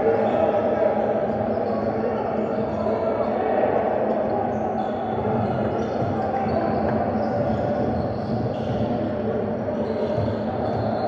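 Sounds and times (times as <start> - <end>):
hubbub of voices: 0.0 - 11.0
basketball bouncing on court: 5.4 - 9.1, 9.8 - 11.0.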